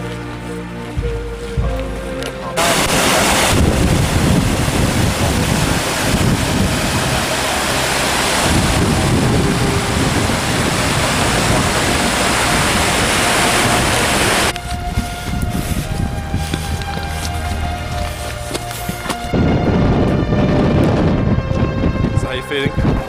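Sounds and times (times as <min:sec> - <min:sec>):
music with held tones: 0:00.0 - 0:23.0
stream rushing over boulders: 0:02.6 - 0:19.3.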